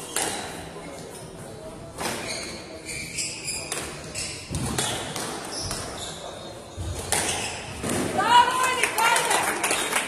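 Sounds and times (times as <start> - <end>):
shoes squeaking on wooden floor: 2.0 - 7.9.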